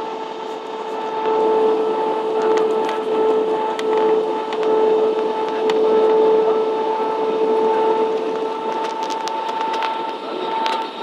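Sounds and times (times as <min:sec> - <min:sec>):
airliner cabin engine drone: 0:00.0 - 0:11.0.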